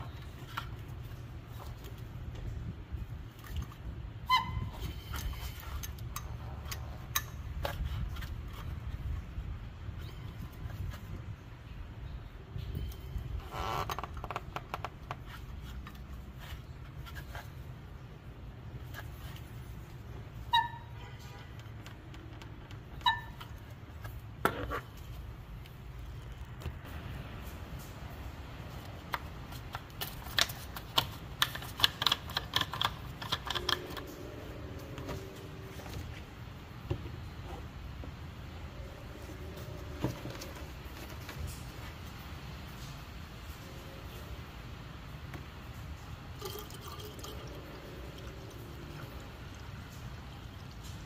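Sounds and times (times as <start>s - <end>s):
plastic cap clicking and ratcheting: 29.1s - 34.3s.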